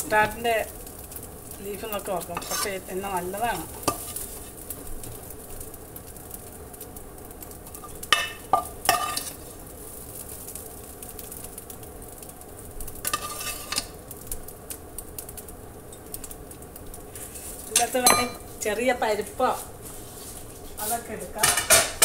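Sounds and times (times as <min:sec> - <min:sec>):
food sizzling in a pan: 0:00.0 - 0:22.0
metal spoon scraping and clinking: 0:02.4 - 0:02.8, 0:08.1 - 0:09.4, 0:13.1 - 0:13.9.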